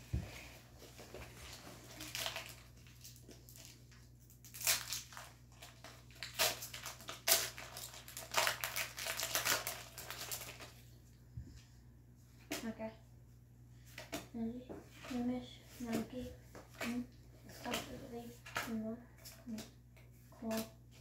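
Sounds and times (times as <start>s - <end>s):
foil pack crinkling and tearing: 1.8s - 10.8s.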